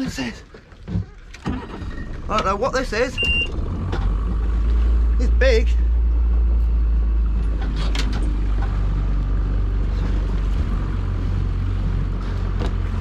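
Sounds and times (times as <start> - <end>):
outboard motor rumbling: 0.0 - 13.0.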